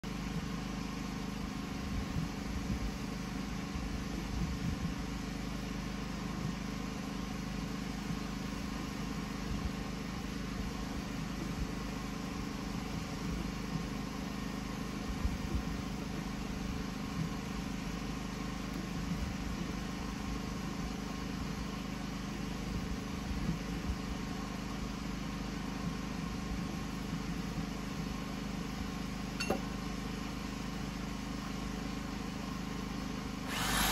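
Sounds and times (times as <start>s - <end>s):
small engine running: 32.0s - 33.9s.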